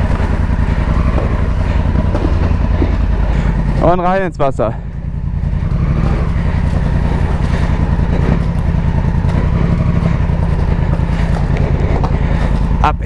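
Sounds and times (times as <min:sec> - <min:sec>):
motorcycle engines running: 0:00.0 - 0:13.0
bikes clattering over ice: 0:05.9 - 0:13.0.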